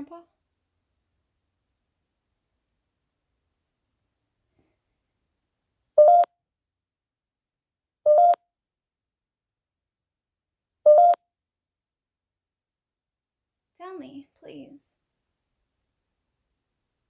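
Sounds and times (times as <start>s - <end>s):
short electronic bleeps: 6.0s - 6.3s, 8.1s - 8.4s, 10.9s - 11.2s.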